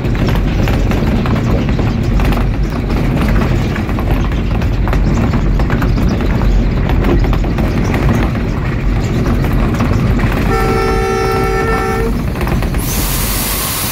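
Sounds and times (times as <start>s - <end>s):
train wheels rumbling on rails: 0.0s - 13.9s
locomotive horn blast: 10.4s - 12.3s.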